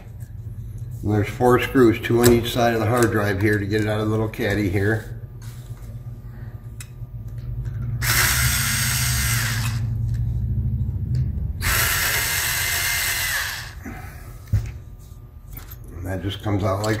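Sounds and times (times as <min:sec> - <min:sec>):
electric screwdriver running: 0:08.0 - 0:10.0, 0:11.6 - 0:13.8.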